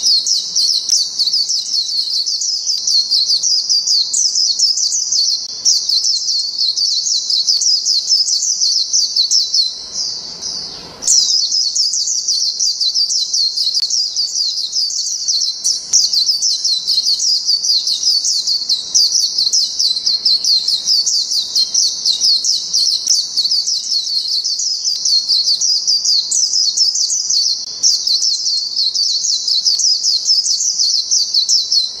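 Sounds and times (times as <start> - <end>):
bird twittering song: 0.0 - 32.0.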